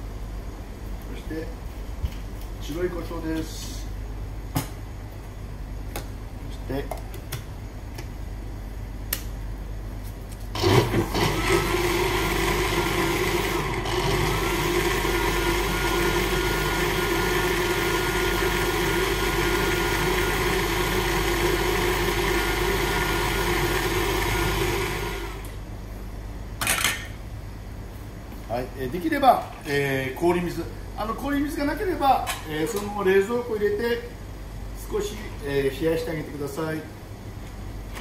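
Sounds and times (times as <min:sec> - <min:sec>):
blender running: 0:10.5 - 0:25.6.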